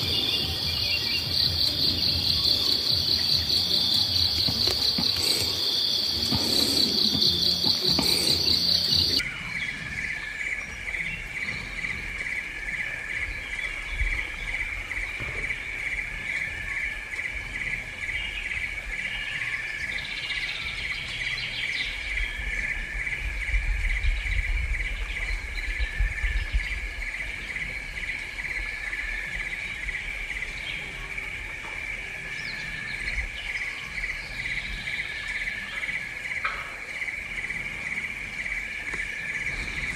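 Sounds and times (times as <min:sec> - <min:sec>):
insects chirring: 0:00.0 - 0:20.5
faint bird chirps: 0:00.0 - 0:39.9.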